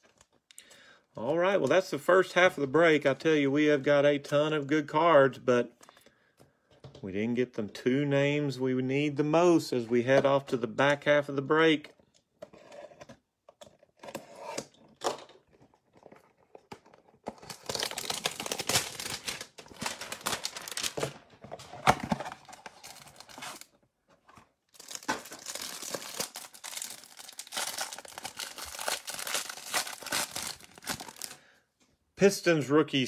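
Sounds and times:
cardboard and plastic tearing: 15.8s - 23.7s, 24.3s - 31.4s
cellophane wrapper peeling: 17.3s - 21.2s, 22.2s - 23.7s, 24.7s - 31.4s.

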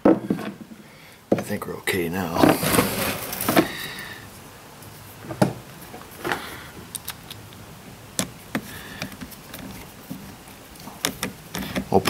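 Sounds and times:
clicks of small parts handled: 6.9s - 7.5s.

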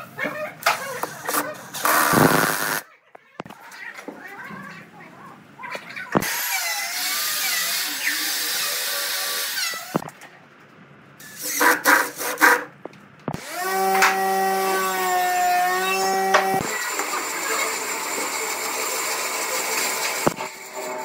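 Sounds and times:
cordless drill bursts: 1.8s - 2.8s
electric drill boring into wood: 1.8s - 2.8s, 6.2s - 10.0s, 13.4s - 21.0s
steady motor hum: 12.8s - 21.0s.

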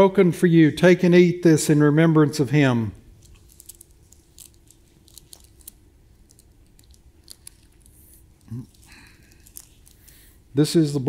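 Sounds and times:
wafer crunching while chewed: 3.1s - 10.4s.

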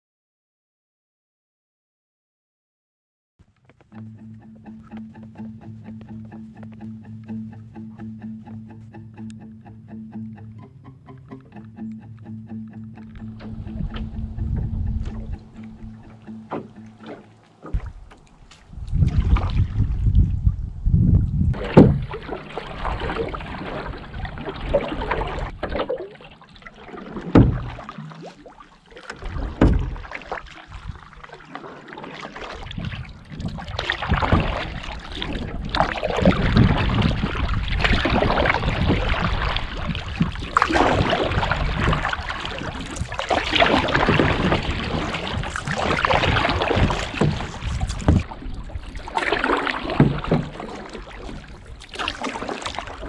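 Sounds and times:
wind buffeting microphone: 13.2s - 17.0s, 17.7s - 25.7s, 32.5s - 49.2s
paddle water swishing and splashing: 13.2s - 20.7s, 21.6s - 53.0s.

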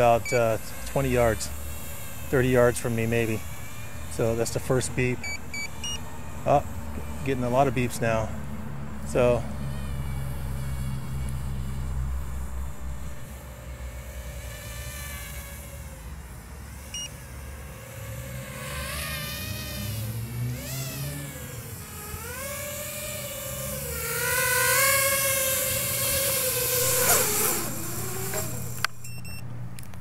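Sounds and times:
drone motors whining: 0.0s - 30.0s
short beep: 29.0s - 29.4s.

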